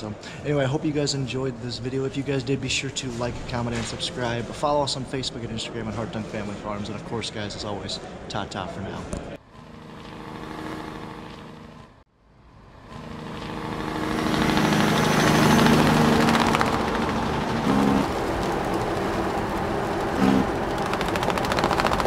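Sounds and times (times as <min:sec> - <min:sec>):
tractor engine running: 0:13.0 - 0:22.0.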